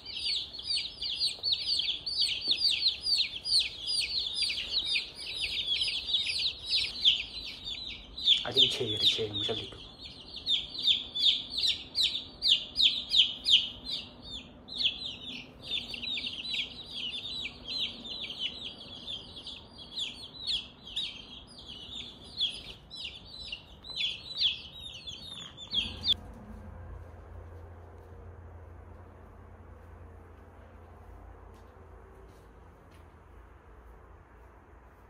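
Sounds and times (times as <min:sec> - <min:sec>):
chicks peeping: 0:00.0 - 0:26.2.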